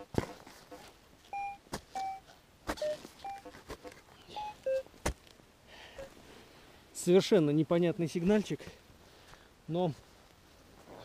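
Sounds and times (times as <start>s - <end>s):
metal detector beeps: 1.3s - 2.2s, 2.8s - 3.6s, 4.3s - 4.9s.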